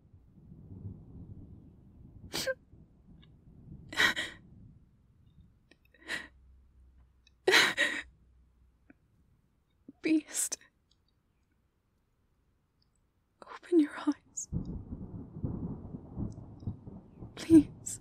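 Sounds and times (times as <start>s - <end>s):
faint low rumble: 0.0s - 10.8s, 11.6s - 18.0s
woman sobbing: 4.0s - 4.4s, 7.5s - 8.1s.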